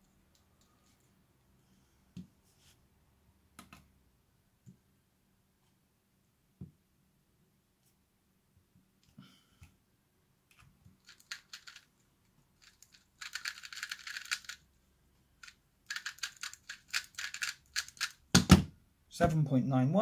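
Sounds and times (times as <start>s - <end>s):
puzzle cube clicking: 11.0s - 11.9s, 12.6s - 14.6s, 15.4s - 18.4s.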